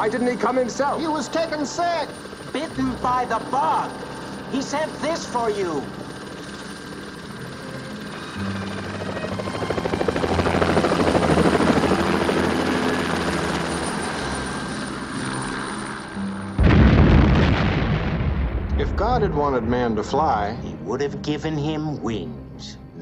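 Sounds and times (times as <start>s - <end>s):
helicopter rotor and engine: 0.0s - 16.8s
loud explosion: 16.6s - 20.6s.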